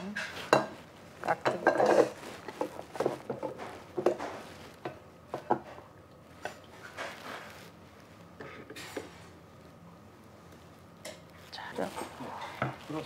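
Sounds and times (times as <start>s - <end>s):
tableware clicking and knocking: 1.4s - 5.7s.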